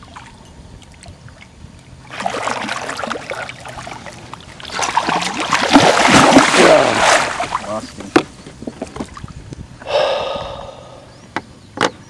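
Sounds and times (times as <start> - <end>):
fish splashing at surface: 4.6 - 7.7.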